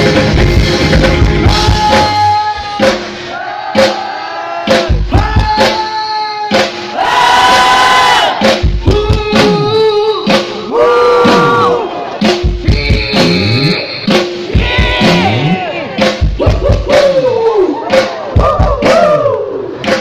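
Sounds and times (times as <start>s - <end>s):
live rock band playing: 0.0s - 20.0s
crowd shouting and singing along: 1.2s - 20.0s.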